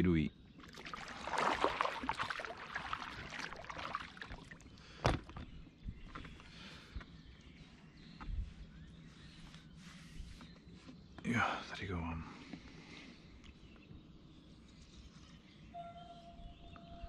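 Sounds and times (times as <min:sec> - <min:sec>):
oar splashing in water: 0:00.6 - 0:05.4.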